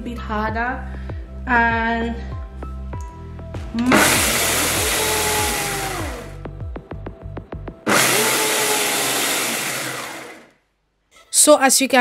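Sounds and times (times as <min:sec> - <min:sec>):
blender grinding rice: 0:03.9 - 0:06.4, 0:07.9 - 0:10.5.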